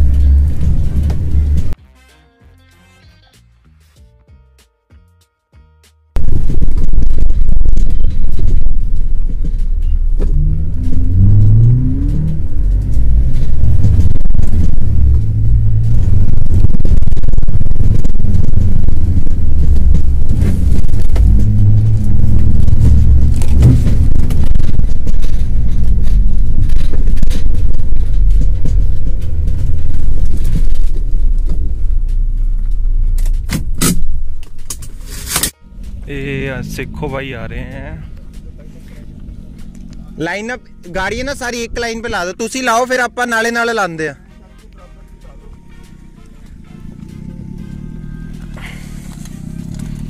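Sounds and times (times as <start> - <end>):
heavy low rumble: 0.0 - 1.8, 6.2 - 43.2, 44.3 - 50.0
suv engine accelerating: 0.0 - 1.8, 6.2 - 50.0.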